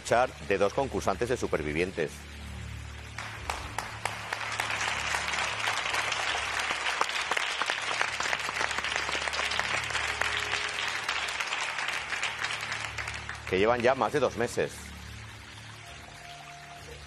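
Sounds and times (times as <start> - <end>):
low steady hum: 0.0 - 17.0
audience applause: 3.2 - 14.2.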